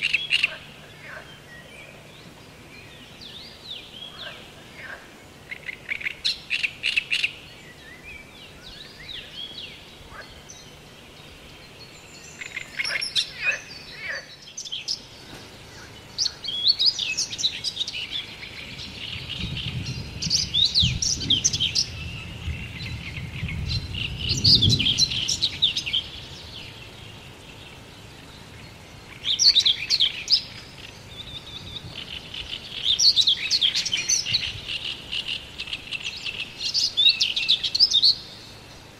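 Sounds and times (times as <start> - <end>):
songbirds chirping and warbling: 0.0 - 38.9.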